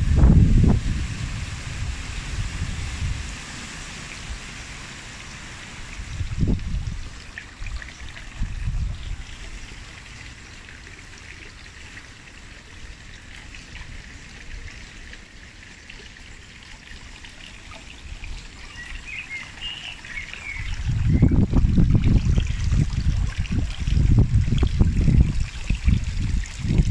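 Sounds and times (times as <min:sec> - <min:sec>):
wind buffeting microphone: 0:00.0 - 0:03.4, 0:05.9 - 0:09.5, 0:20.4 - 0:26.9
fountain water trickling: 0:00.0 - 0:26.9.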